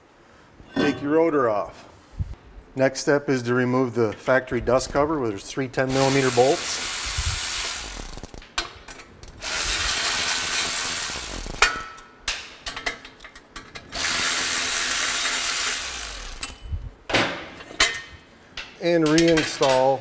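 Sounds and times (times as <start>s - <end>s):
electric ratchet spinning bolts: 4.8s - 5.1s, 5.9s - 8.6s, 9.2s - 12.0s, 13.8s - 16.7s
small metal clicks and knocks: 11.3s - 13.9s, 17.6s - 20.0s.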